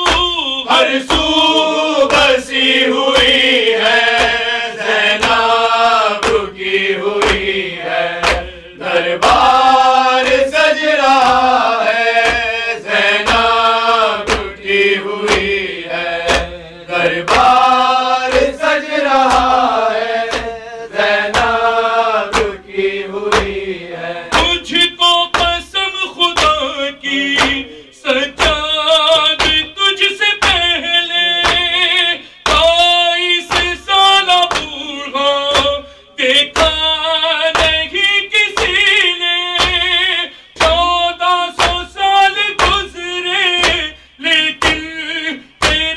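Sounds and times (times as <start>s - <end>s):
man chanting: 0.0s - 5.4s, 23.8s - 45.9s
rhythmic thumps: 0.0s - 45.9s.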